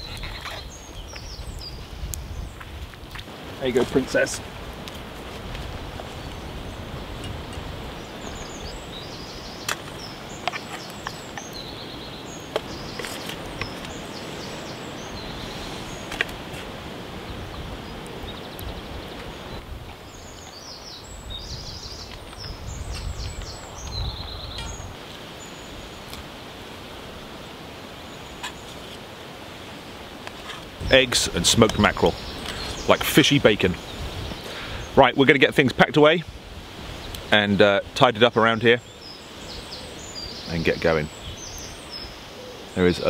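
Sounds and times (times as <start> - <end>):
wind buffeting microphone: 0.0 - 25.0, 30.7 - 35.0
songbirds chirping: 0.0 - 43.0
wind hiss: 0.0 - 43.0.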